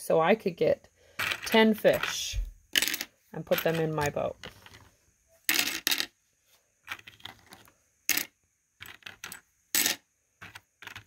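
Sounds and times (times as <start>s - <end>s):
game pieces clattering into plastic tray: 1.2s - 2.2s, 2.8s - 4.9s, 5.5s - 6.1s, 6.8s - 11.0s.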